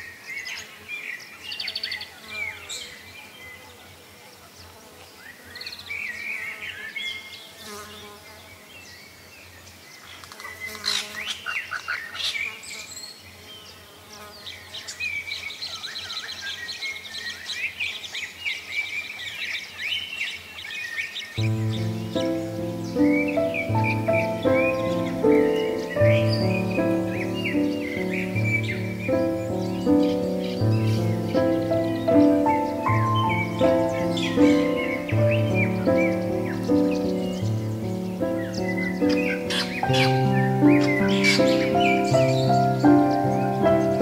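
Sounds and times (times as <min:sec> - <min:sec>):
small birds chirping: 0:00.0 - 0:44.0
music: 0:21.4 - 0:44.0.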